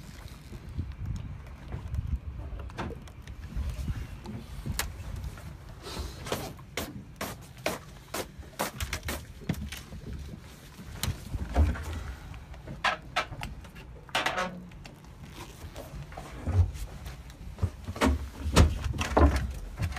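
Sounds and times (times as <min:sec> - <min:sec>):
handling noise with clicks: 0:00.0 - 0:05.6, 0:08.6 - 0:16.2.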